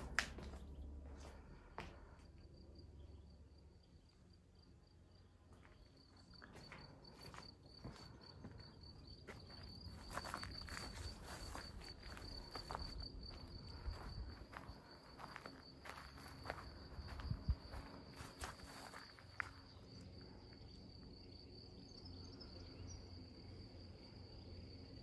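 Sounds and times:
footsteps on grass: 0:09.3 - 0:19.7.

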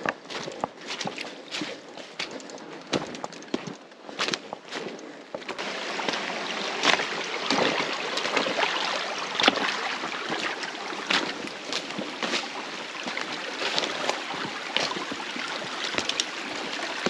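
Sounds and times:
river water rushing: 0:05.6 - 0:17.0
sharp splashes: 0:05.6 - 0:17.0.

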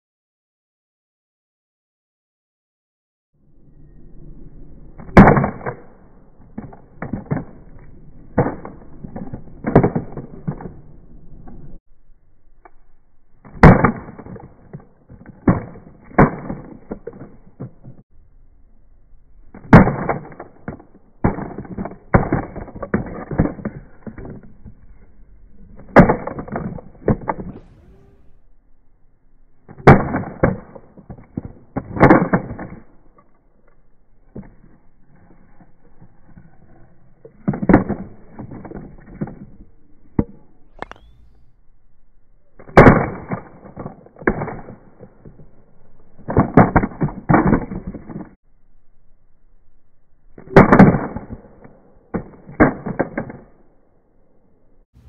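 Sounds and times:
gimbal hitting asphalt: 0:04.9 - 0:11.8, 0:13.4 - 0:18.0, 0:19.3 - 0:28.6, 0:29.4 - 0:41.6, 0:42.4 - 0:48.4, 0:50.4 - 0:53.7.

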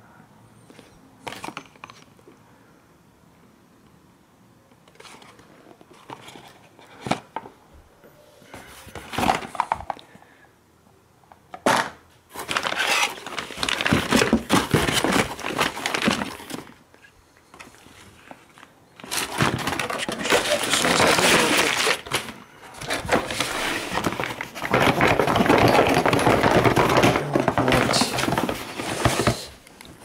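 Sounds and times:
cardboard boxes rustling: 0:04.9 - 0:07.4, 0:08.5 - 0:10.0, 0:12.3 - 0:16.8, 0:17.6 - 0:30.0
plastic packaging crinkling: 0:12.3 - 0:16.8, 0:17.7 - 0:30.0.

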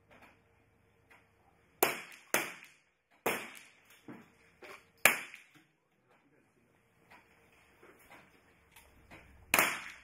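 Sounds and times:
pistol shots with echo: 0:01.8 - 0:03.8, 0:05.0 - 0:05.5, 0:09.5 - 0:10.0.

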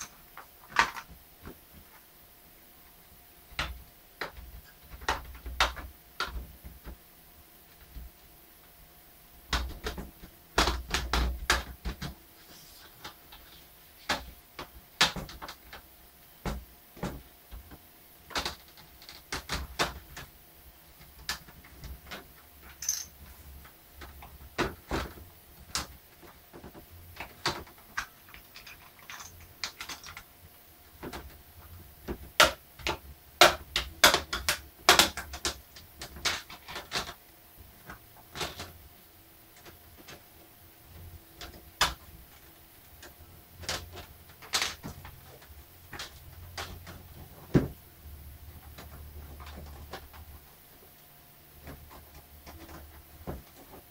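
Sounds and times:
plastic clips clicking and snapping: 0:32.0 - 0:37.2, 0:43.0 - 0:47.0.

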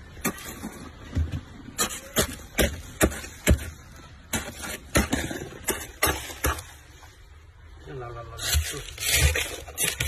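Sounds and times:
plastic scraper scraping frost: 0:08.4 - 0:10.0.

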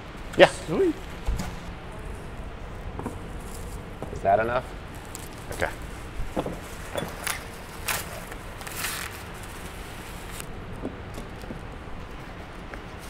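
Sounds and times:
low room hum: 0:00.0 - 0:13.0
short rustle: 0:04.9 - 0:10.4.

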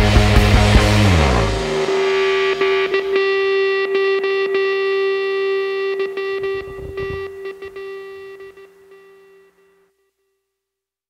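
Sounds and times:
rock music: 0:00.0 - 0:08.7
distorted electric guitar note: 0:00.0 - 0:09.6.

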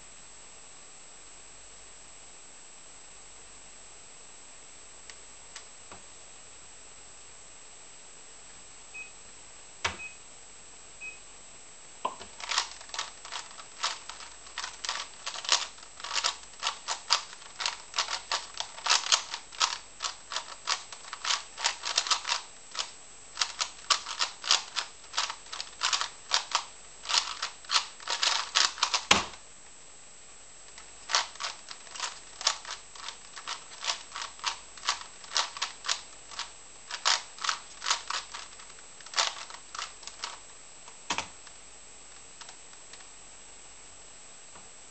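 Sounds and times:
puzzle cube clicking: 0:12.2 - 0:29.4, 0:30.7 - 0:40.5.

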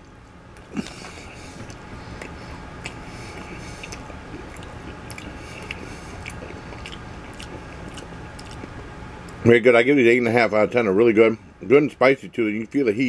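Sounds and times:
person chewing: 0:00.5 - 0:08.8
small crunches: 0:00.5 - 0:08.8
wet mouth clicks: 0:00.6 - 0:08.8.

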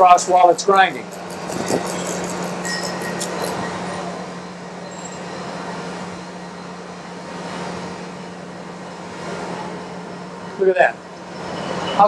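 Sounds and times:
grinding wheel hissing on steel: 0:00.2 - 0:03.7
machine humming: 0:00.6 - 0:03.6.

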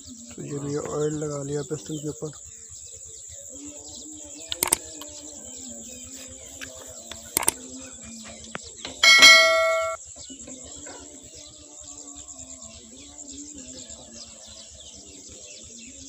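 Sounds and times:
light metallic clicks: 0:04.5 - 0:05.1, 0:06.6 - 0:07.6
loud metal clang: 0:09.0 - 0:10.0.

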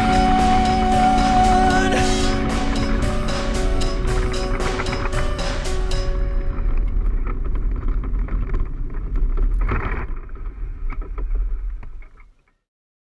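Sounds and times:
cart knocking and rattling: 0:00.0 - 0:12.0
cart wheels rumbling on tarmac: 0:02.2 - 0:12.4.

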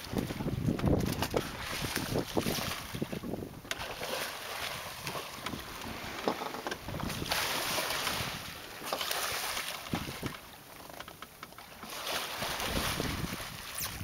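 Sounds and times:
wind on microphone: 0:00.0 - 0:04.1, 0:04.9 - 0:08.6, 0:09.8 - 0:10.4, 0:12.4 - 0:14.0
water rushing along a hull: 0:00.0 - 0:14.0.

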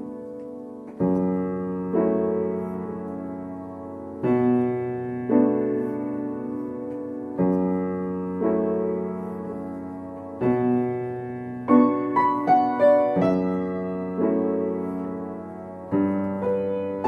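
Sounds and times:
slow gentle piano piece: 0:00.0 - 0:17.0.

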